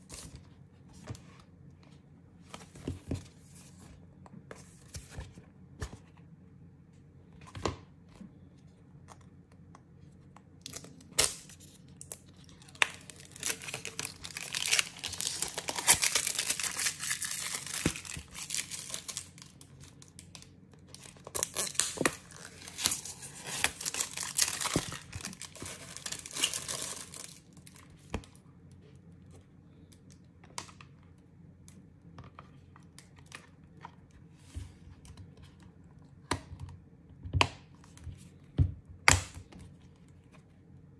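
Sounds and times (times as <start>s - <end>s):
plastic packaging crinkling and tearing: 10.6s - 28.0s.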